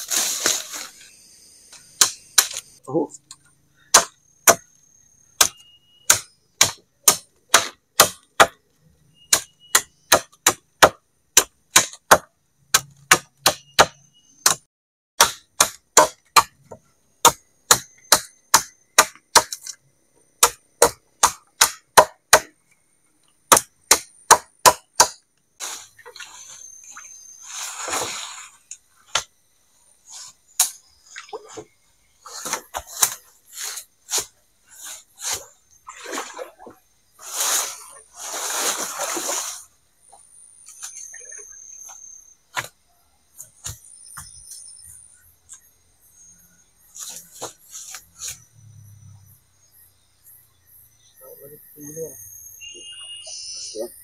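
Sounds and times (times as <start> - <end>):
machete chopping wood: 2.0 - 2.6, 3.9 - 4.7, 5.4 - 8.6, 9.3 - 14.6, 15.2 - 16.6, 17.2 - 19.6, 20.4 - 22.5, 23.5 - 25.2.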